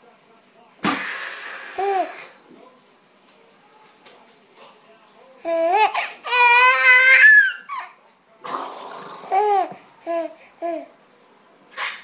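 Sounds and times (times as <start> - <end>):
baby laughing: 1.8 - 2.3, 5.4 - 8.0, 9.3 - 10.9
baby babbling: 5.4 - 8.0, 9.3 - 10.9
baby squealing: 5.5 - 8.0.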